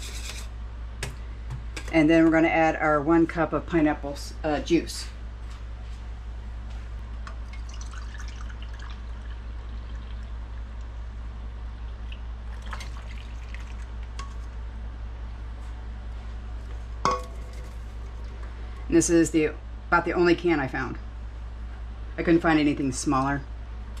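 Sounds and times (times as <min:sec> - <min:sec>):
low hum: 0:00.0 - 0:24.0
juice pouring and trickling: 0:07.4 - 0:10.9, 0:11.9 - 0:14.2.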